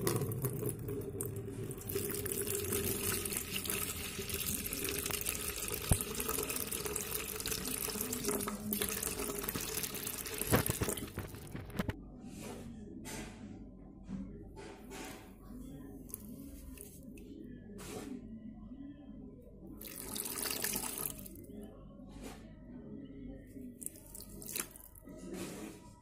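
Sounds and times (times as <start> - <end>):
water drips: 0.0 - 11.4, 23.8 - 24.9
water pouring into plastic bucket: 0.0 - 12.0, 19.8 - 21.4, 23.8 - 25.0.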